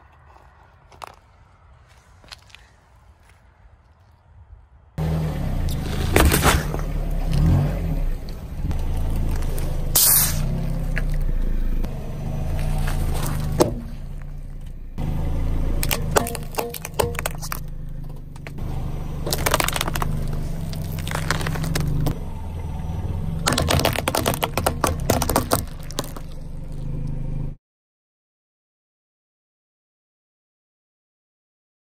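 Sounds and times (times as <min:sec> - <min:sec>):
car engine running low: 0:05.0 - 0:27.6
tyre crushing objects: 0:05.7 - 0:07.7, 0:12.3 - 0:14.4, 0:15.8 - 0:22.2, 0:23.4 - 0:26.7.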